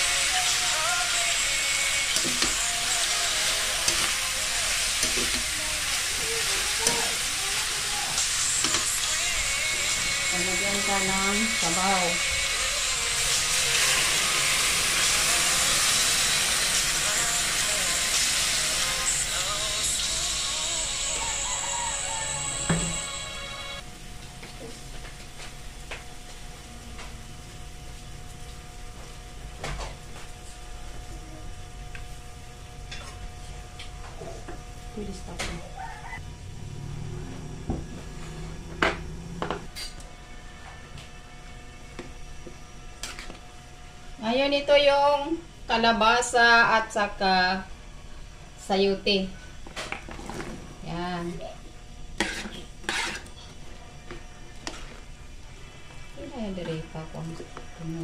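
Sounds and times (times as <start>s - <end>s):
frying sizzle: 0.0s - 31.1s
metal spatula scraping wok: 52.2s - 53.6s.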